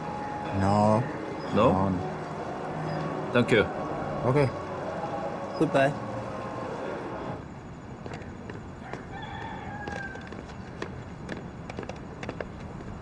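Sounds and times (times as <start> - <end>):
footsteps on pavement: 8.0 - 13.0
rooster crowing: 8.8 - 10.6.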